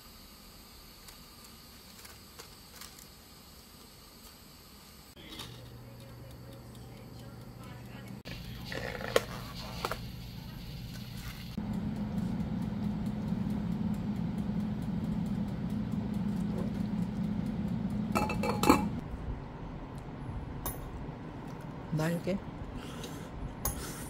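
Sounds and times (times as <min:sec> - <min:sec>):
steady low hum: 0:00.0 - 0:24.0
dishes and utensils clattering: 0:18.2 - 0:19.0.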